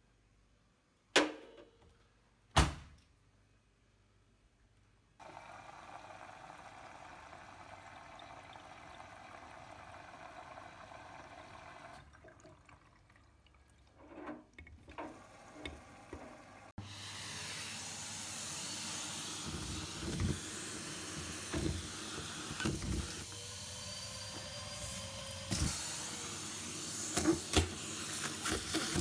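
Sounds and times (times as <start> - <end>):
vacuum cleaner running: 5.2 - 12.0, 15.0 - 29.0
washing machine filling with water: 5.2 - 29.0.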